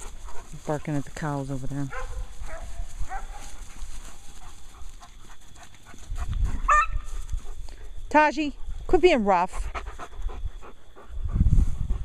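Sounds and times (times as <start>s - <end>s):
dog barking: 1.9s - 3.6s, 6.7s - 7.0s.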